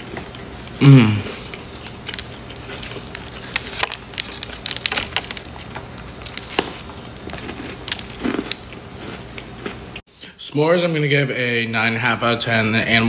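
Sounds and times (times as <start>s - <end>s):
cookie crunching and chewing: 0.0s - 9.9s
low steady hum: 0.0s - 13.0s.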